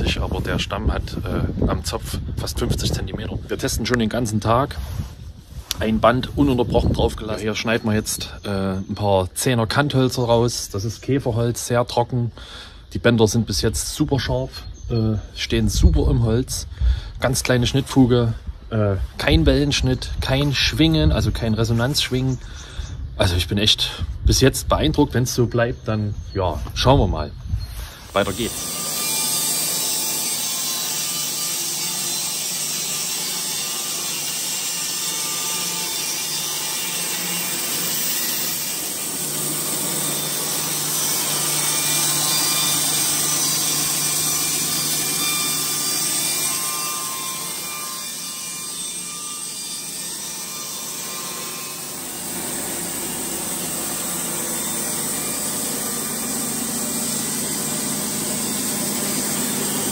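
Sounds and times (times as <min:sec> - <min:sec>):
bandsaw cutting log: 0:28.1 - 0:59.9.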